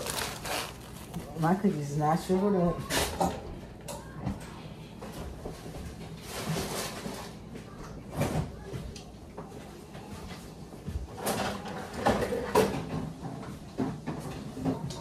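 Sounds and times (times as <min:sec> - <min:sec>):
cupboard clatter: 0:00.0 - 0:03.4, 0:11.1 - 0:14.9.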